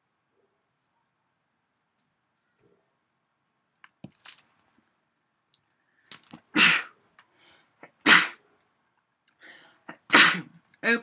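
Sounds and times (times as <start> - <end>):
person sneezing: 6.5 - 7.0, 7.8 - 8.4, 9.9 - 10.6.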